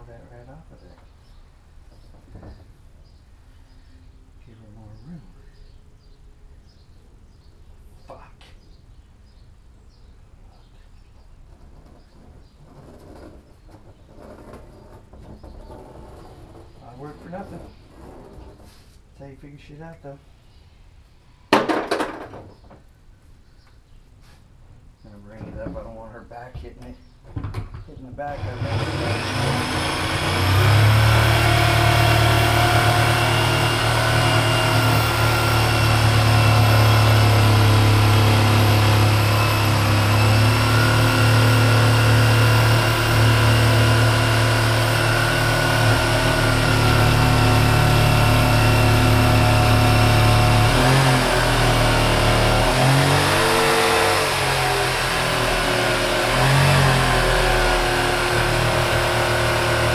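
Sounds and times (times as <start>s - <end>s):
power tool motor on plastic: 28.3s - 59.9s.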